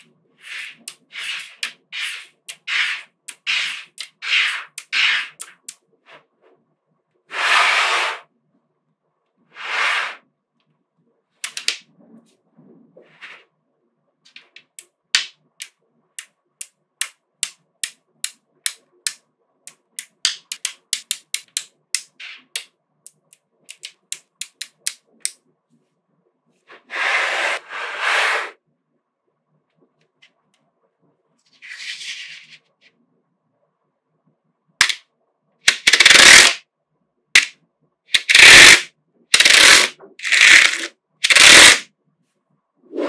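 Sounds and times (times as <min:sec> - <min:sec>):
magnetic balls clicking: 0:14.3 - 0:25.4, 0:35.6 - 0:36.6, 0:37.4 - 0:41.8
sheet of balls rattling on table: 0:35.7 - 0:36.6, 0:38.1 - 0:41.9.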